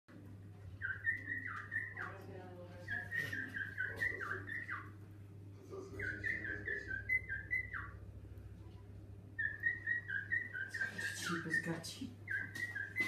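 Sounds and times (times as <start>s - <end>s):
cockatiel whistling: 0.8s - 2.1s, 2.9s - 5.0s, 5.9s - 8.0s, 9.4s - 13.0s.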